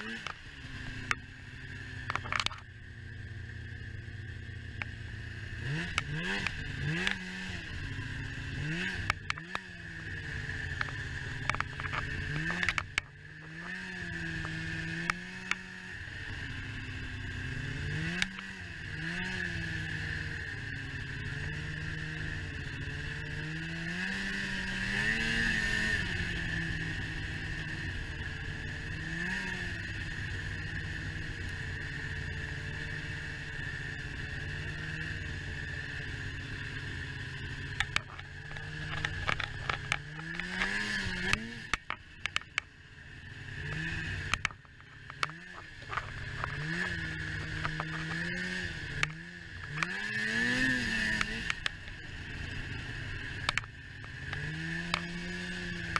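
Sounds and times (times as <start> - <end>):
snowmobile engine: 0.0 - 55.9
steady high whine: 0.0 - 55.9
sharp clacks and knocks: 37.7 - 42.7.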